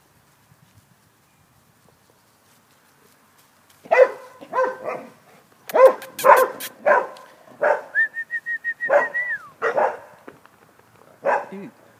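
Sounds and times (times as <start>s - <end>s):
dogs barking: 3.9s - 8.0s, 8.9s - 10.2s, 11.2s - 11.6s.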